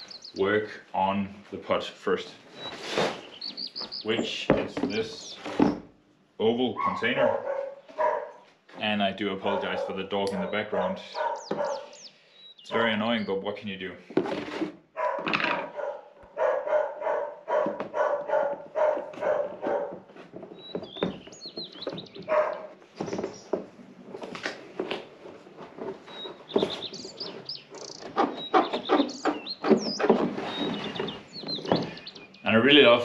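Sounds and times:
dog barking: 0:06.8 - 0:08.4, 0:09.4 - 0:12.0, 0:15.0 - 0:20.0, 0:22.3 - 0:22.7.

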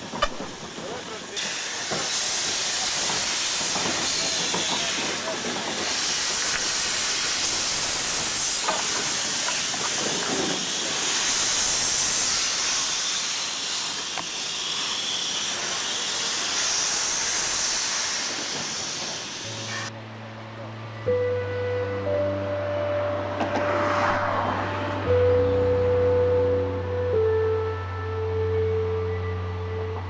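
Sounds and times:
steam hissing: 0:00.0 - 0:19.9.

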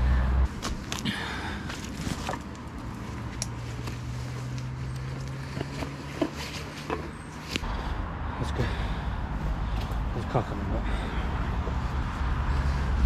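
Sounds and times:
road traffic hum: 0:00.0 - 0:13.0
jacket and straps rustling: 0:00.4 - 0:07.7.

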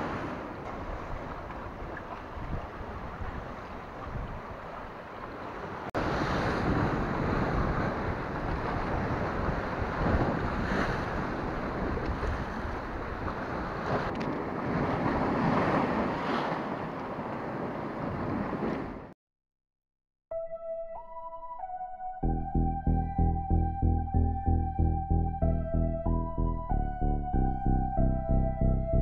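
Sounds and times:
wind buffeting microphone: 0:00.0 - 0:19.1.

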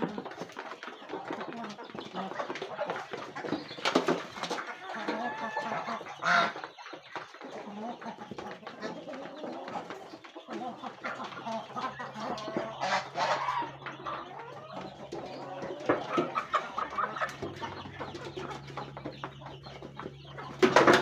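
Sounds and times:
beaks pecking metal basins: 0:00.0 - 0:21.0
chickens clucking: 0:00.0 - 0:21.0
loud chicken call: 0:04.8 - 0:06.6, 0:12.3 - 0:13.8.

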